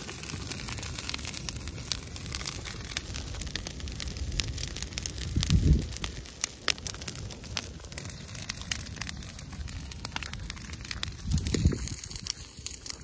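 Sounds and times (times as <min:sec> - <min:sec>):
brushwood fire crackling: 0:00.0 - 0:13.0
wind rumbling on microphone: 0:02.9 - 0:07.1, 0:09.8 - 0:13.0.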